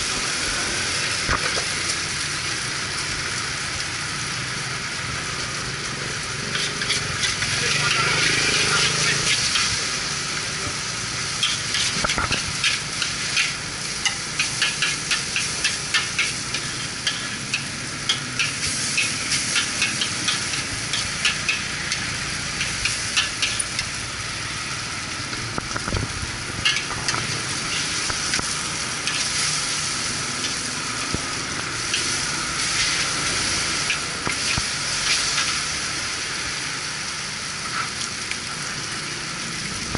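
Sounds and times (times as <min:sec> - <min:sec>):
noodles sizzling in a wok: 0:00.0 - 0:39.9
metal spatula scraping a wok: 0:06.5 - 0:09.8, 0:11.4 - 0:23.7, 0:26.6 - 0:28.1.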